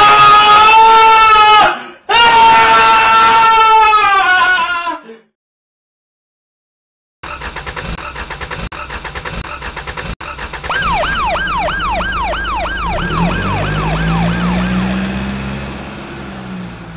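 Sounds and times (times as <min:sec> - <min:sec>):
fast even rattle: 0:07.2 - 0:12.6
vehicle engine rumble: 0:07.3 - 0:16.9
emergency siren yelping: 0:10.6 - 0:15.2.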